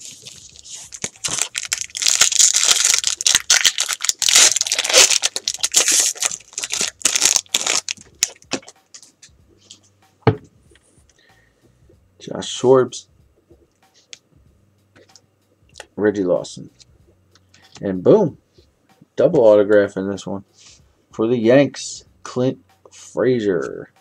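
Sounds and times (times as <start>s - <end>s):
foil wrapper tearing and crinkling: 0.0s - 8.7s.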